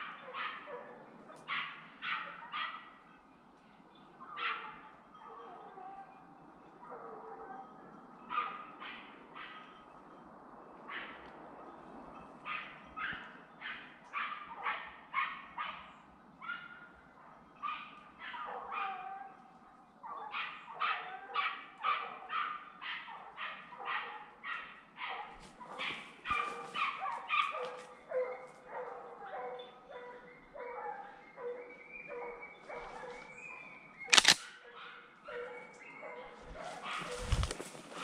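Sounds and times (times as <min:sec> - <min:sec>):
dogs yelping: 0:00.0 - 0:02.9, 0:17.6 - 0:19.3, 0:20.1 - 0:38.0
dogs barking: 0:00.0 - 0:03.1, 0:04.2 - 0:10.0, 0:12.4 - 0:38.0.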